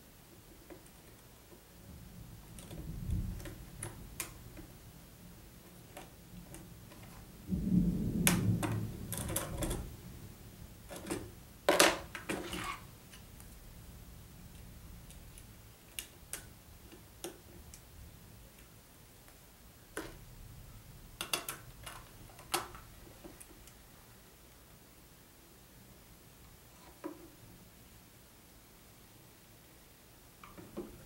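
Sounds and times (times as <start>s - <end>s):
plastic bricks clicking: 21.2s - 22.8s.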